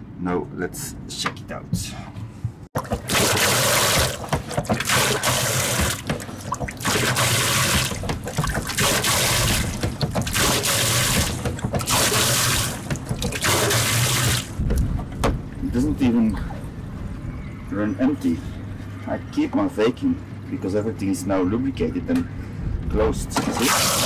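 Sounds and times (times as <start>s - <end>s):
water gushing from hose: 2.8s - 14.6s, 23.5s - 24.0s.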